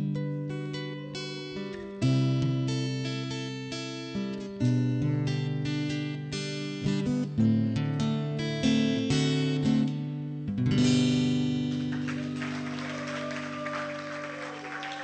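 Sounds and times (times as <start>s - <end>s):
acoustic guitar chords: 0.0s - 12.4s
audience applause: 11.7s - 15.0s.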